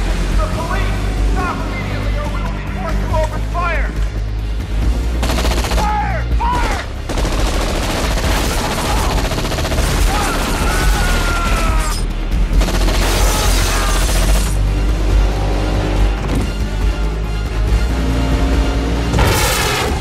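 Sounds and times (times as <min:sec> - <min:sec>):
film score music: 0:00.0 - 0:20.0
rapid submachine gun fire: 0:07.1 - 0:10.2.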